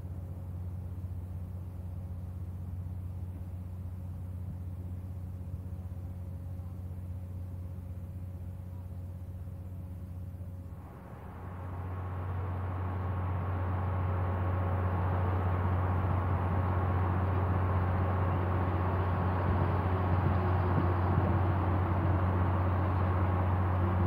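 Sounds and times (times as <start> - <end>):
boat engine droning: 0.0 - 24.0
rushing water noise: 10.8 - 24.0.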